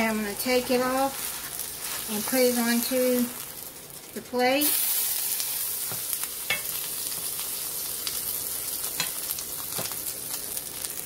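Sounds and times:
oil sizzling in frying pan: 0.0s - 11.0s.

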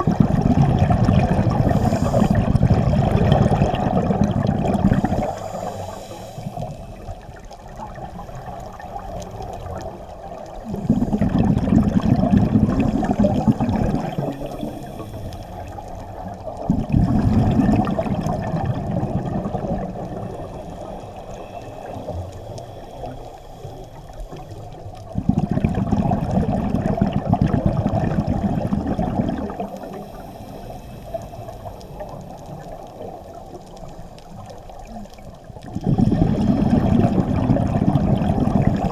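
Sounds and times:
exhaled bubbles underwater: 0.0s - 38.9s
regulator breathing hiss: 1.6s - 2.6s, 4.9s - 7.3s, 12.8s - 16.4s, 20.2s - 24.9s, 29.7s - 35.1s.

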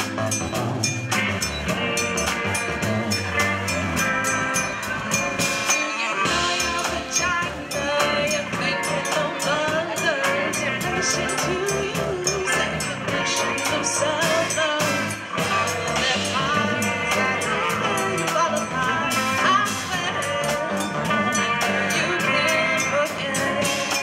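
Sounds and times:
drum and cymbal hits: 0.0s - 24.0s
live band music: 0.0s - 24.0s
sliding melody line: 0.0s - 24.0s.

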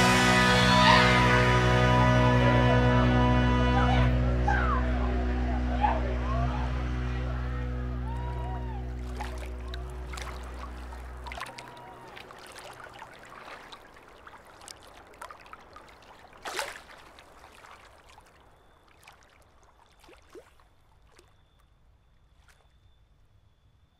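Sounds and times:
low sustained musical tone: 0.0s - 14.4s
water lapping on pebbles: 9.0s - 21.4s.

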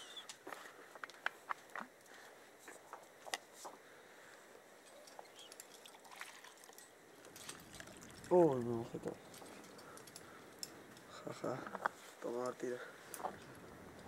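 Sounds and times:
climbing gear clicking on rock: 8.6s - 14.0s.

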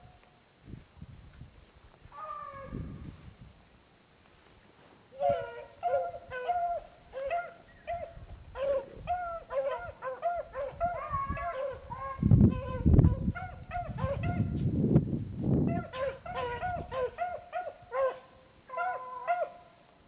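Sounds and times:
hounds baying: 5.2s - 14.5s, 15.7s - 19.8s.

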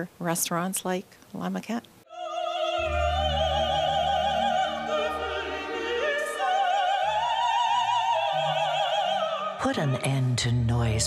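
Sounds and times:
operatic voice singing: 2.1s - 11.0s
orchestral accompaniment: 2.4s - 9.4s.

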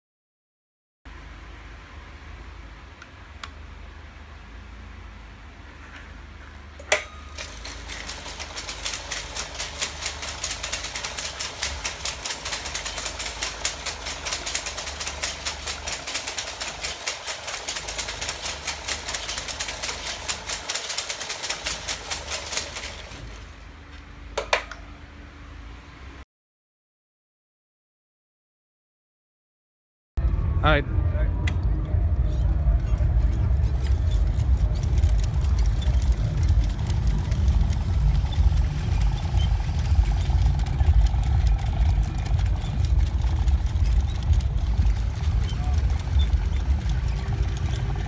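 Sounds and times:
steel leg linkages clattering: 6.8s - 23.2s.

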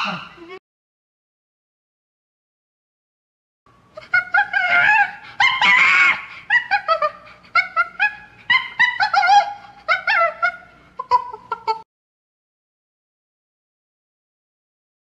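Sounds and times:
animal yelps and squeals: 0.0s - 0.4s, 4.0s - 11.8s.

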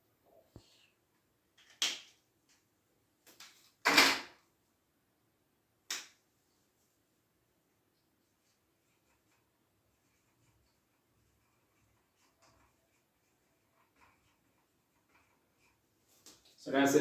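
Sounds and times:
marker scratching on whiteboard: 8.2s - 16.6s.

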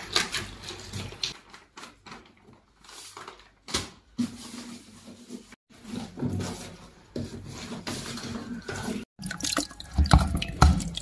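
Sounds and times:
liquid pouring and dripping: 9.2s - 11.0s.

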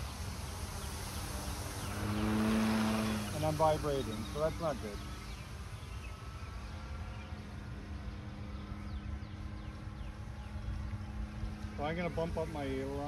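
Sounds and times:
model plane motor humming: 0.0s - 6.4s.

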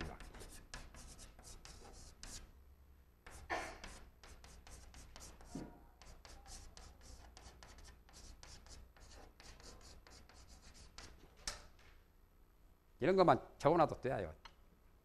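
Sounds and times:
chalk scratching on a chalkboard: 0.0s - 2.5s, 3.3s - 11.2s.

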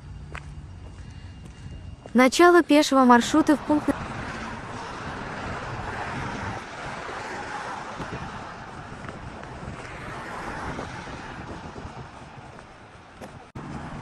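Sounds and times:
wind buffeting microphone: 0.1s - 2.4s, 3.1s - 14.0s
road traffic hiss: 2.8s - 14.0s.

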